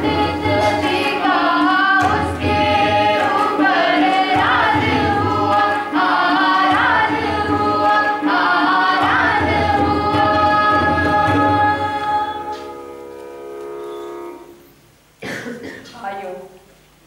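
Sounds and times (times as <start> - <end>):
group singing slow melody: 0.0 - 13.3.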